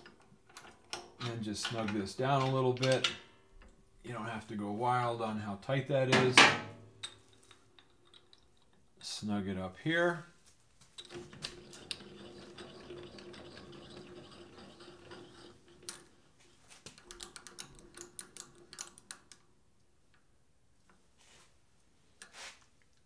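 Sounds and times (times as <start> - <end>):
lathe carriage whirring: 11.5 - 15.9
short rustle: 22.3 - 22.8.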